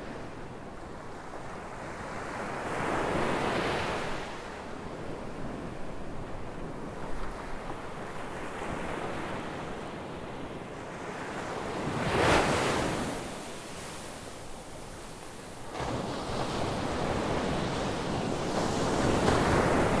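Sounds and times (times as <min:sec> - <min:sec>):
waves breaking on shore: 0:10.9 - 0:20.0.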